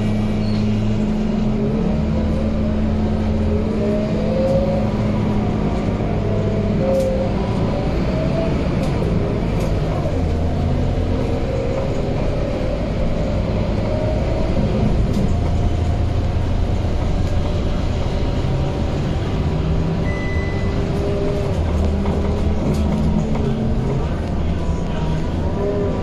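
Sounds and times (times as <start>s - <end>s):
bus diesel engine running: 0.0s - 26.0s
brief high beep: 20.0s - 20.8s.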